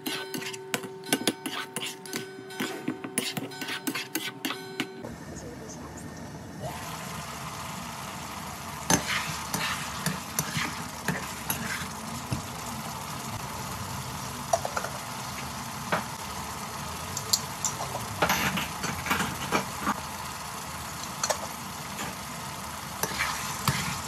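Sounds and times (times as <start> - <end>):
spatula scraping a pan: 0.0 - 4.8, 8.9 - 12.0, 23.0 - 24.0
curry sizzling in a pan: 7.6 - 18.1, 20.6 - 24.0.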